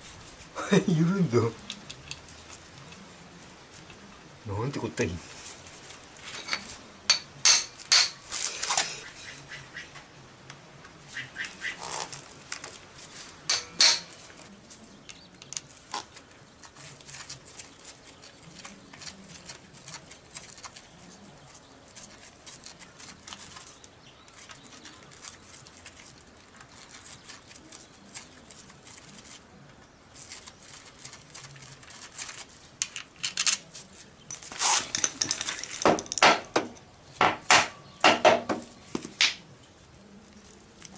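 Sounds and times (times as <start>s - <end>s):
light clicks and handling noises: 1.4s - 4.3s, 11.9s - 36.9s
tools clinking on metal: 13.5s - 14.2s
sharp metallic knocks: 35.9s - 39.4s.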